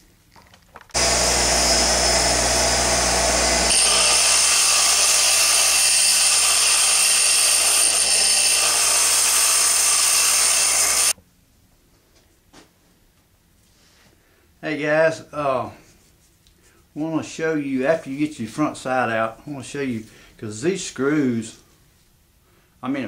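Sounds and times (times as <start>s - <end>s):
bench grinder motor hum: 0.9s - 11.2s
metal grinding hiss: 1.0s - 11.2s.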